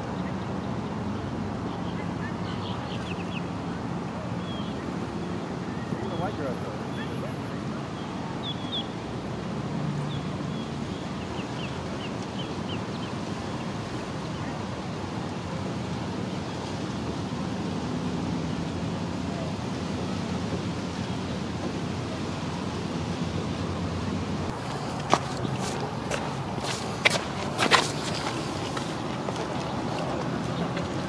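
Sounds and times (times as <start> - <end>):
outdoor rushing noise: 22.0 - 31.0.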